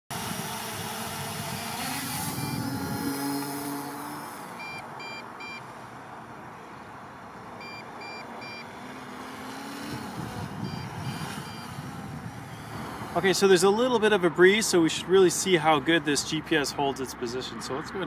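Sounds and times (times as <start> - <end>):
quadcopter motors whining: 0.1 - 5.7, 7.6 - 14.0
short high beeps: 1.6 - 3.2, 4.6 - 5.6, 7.6 - 8.6, 10.6 - 11.8.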